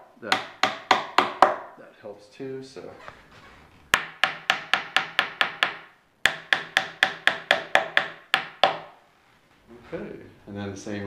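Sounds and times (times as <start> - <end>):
wooden mallet tapping wood: 0.3 - 1.7, 3.9 - 9.0.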